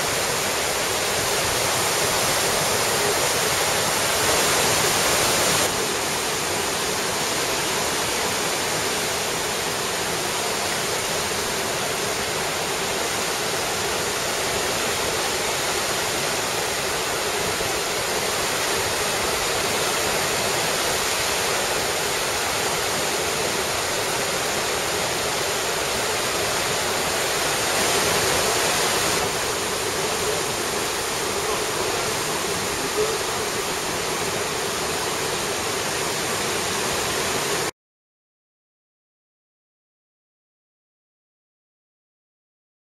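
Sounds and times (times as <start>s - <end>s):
turbulent water rushing: 0.0s - 37.7s.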